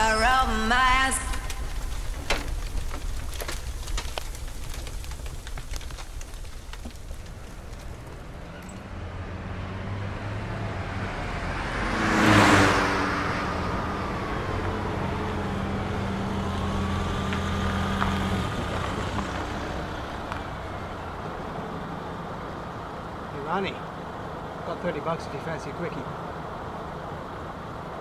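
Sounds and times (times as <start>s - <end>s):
car passing by: 8.2s - 28.0s.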